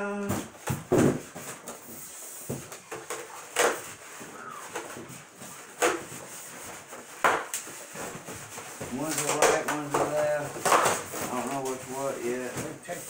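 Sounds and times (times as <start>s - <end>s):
styrofoam and plastic rustling: 0.3s - 13.0s.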